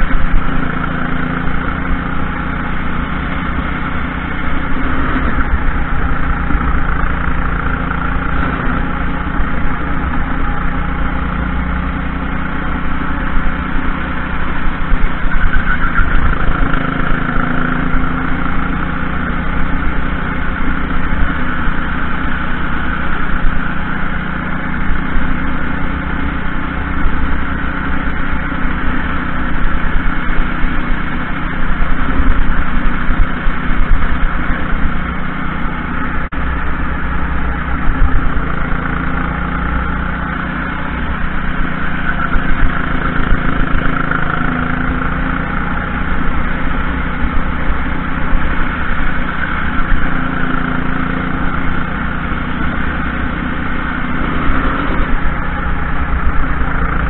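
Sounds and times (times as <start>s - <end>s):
racing kart engine: 0.0s - 57.0s.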